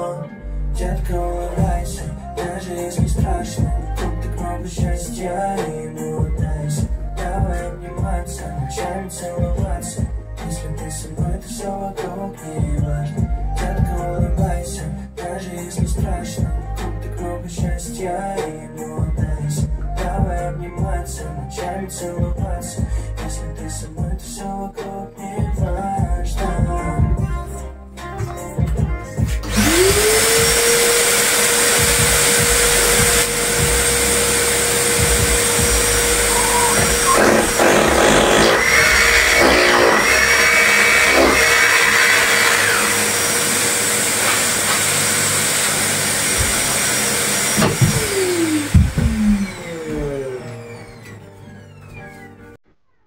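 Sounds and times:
higher vacuum whine: 29.4s - 51.2s
stick vacuum cleaner running: 29.4s - 51.2s.

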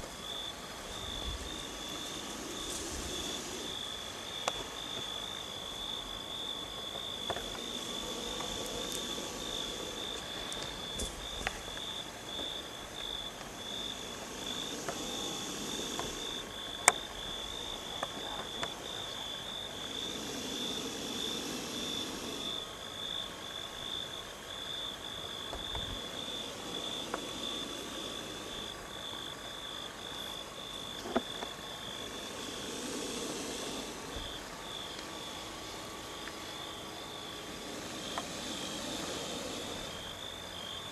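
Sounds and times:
insects trilling: 0.0s - 40.9s.

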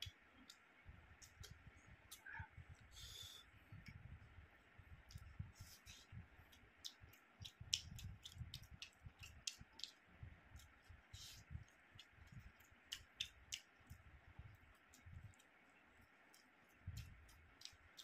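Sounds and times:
wet chewing with mouth clicks: 1.2s - 3.0s, 5.0s - 15.6s, 16.2s - 18.0s
lip smacks: 5.1s - 10.0s, 10.6s - 14.0s.

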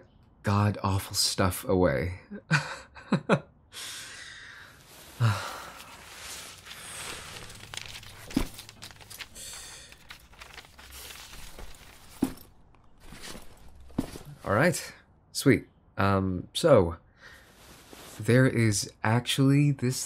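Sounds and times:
papers and books rustling: 4.8s - 14.5s.

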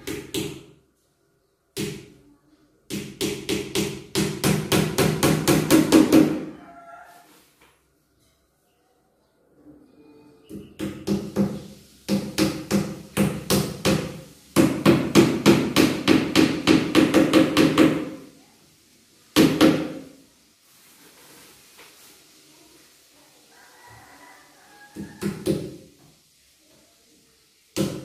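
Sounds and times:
hammer striking nails into wood: 2.9s - 6.4s, 10.8s - 18.2s.

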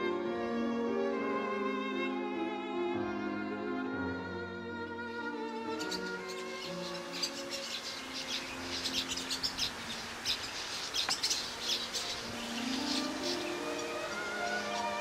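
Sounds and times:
small birds chirping: 5.3s - 15.0s.

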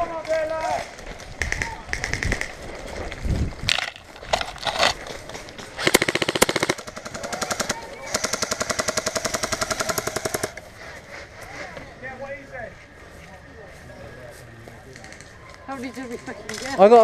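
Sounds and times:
airsoft rifle firing bursts: 5.8s - 10.6s.

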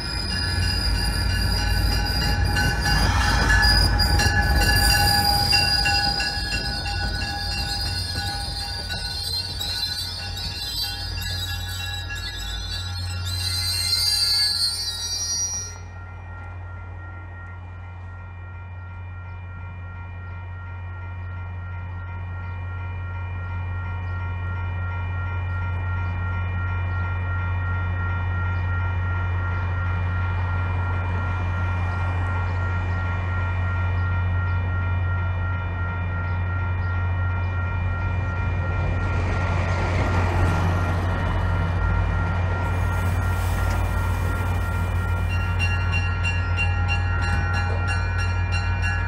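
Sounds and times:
diesel locomotive drone: 0.0s - 49.0s
high-pitched whine: 36.2s - 46.8s.

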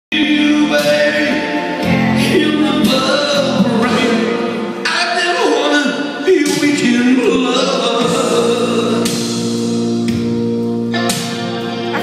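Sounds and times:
man singing into microphone: 0.1s - 9.6s
backing music: 0.1s - 12.0s.

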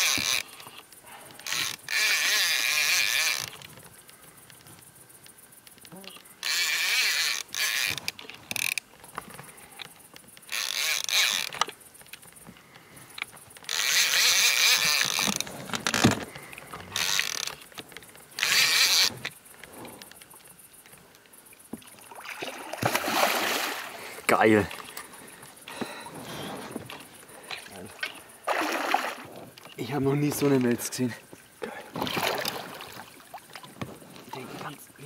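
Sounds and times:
fishing reel whirring: 0.0s - 0.8s, 1.4s - 3.7s, 6.4s - 8.8s, 10.5s - 11.7s, 13.2s - 19.3s.

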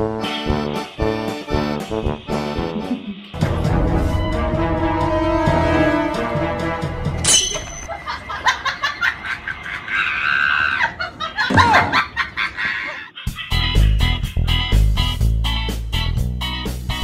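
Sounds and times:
background music: 0.0s - 9.0s
person laughing: 2.6s - 3.3s, 7.9s - 14.8s.

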